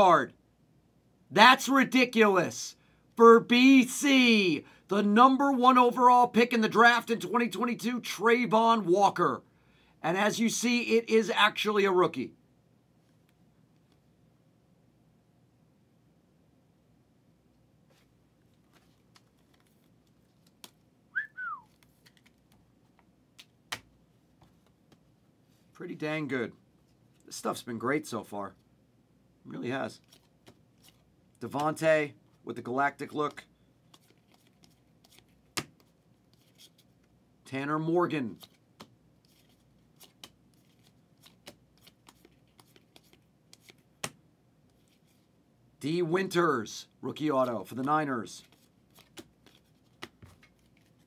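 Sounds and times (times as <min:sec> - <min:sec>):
trading cards flipped by hand: 0:17.9 - 0:20.9, 0:21.7 - 0:25.1, 0:30.0 - 0:31.8, 0:33.8 - 0:37.2, 0:38.3 - 0:45.3, 0:47.4 - 0:51.0
two-note whistle: 0:21.2 - 0:21.7.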